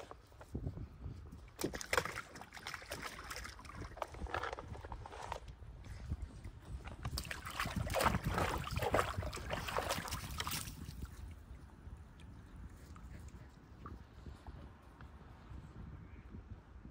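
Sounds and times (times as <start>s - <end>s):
wind on microphone: 0.0s - 16.9s
dog splashing water: 1.6s - 4.6s, 6.9s - 11.2s.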